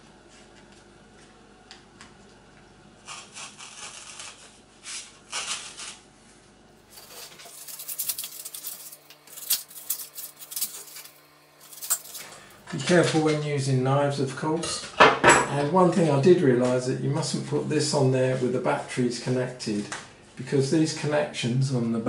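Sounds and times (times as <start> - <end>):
craft knife cutting foam board: 3.0 - 6.0.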